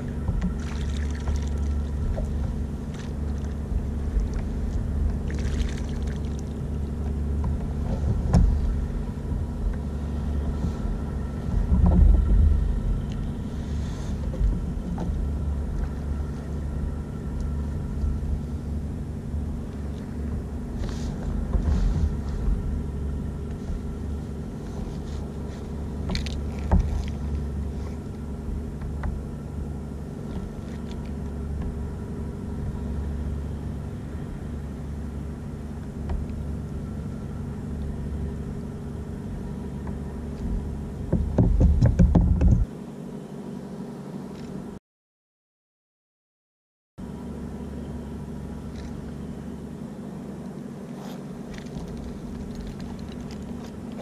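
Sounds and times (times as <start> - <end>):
low bump: 0.0 - 13.5
low rumble with faint hum: 0.0 - 44.8, 47.0 - 54.0
gear knocks and clicks: 24.7 - 28.2, 39.8 - 42.7, 51.1 - 54.0.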